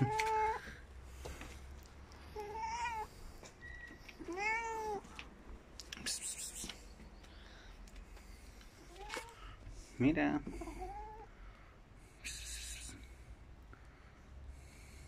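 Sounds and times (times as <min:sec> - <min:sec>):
cat meowing: 0:00.0 - 0:00.8, 0:02.3 - 0:03.2, 0:04.2 - 0:05.3.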